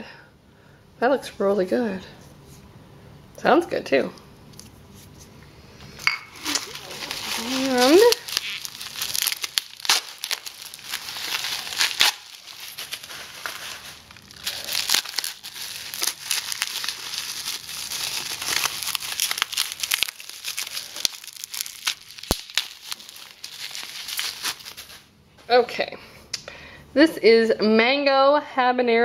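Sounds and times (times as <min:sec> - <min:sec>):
bubble wrap crinkling: 0:06.3 - 0:25.1.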